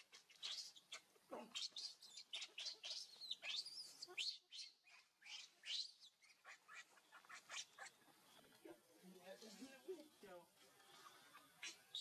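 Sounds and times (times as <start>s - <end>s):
baby monkey squealing: 0.0s - 8.0s, 11.6s - 12.0s.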